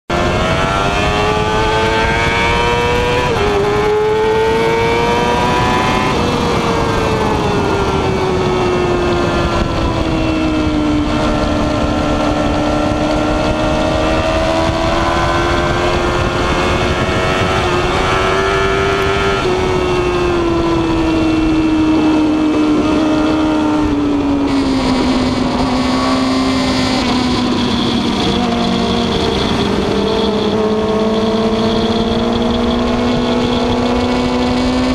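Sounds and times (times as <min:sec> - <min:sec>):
motorcycle engine at high revs: 0:00.1 - 0:34.9
wind rush on microphone: 0:00.1 - 0:34.9
gear change: 0:00.2 - 0:34.9.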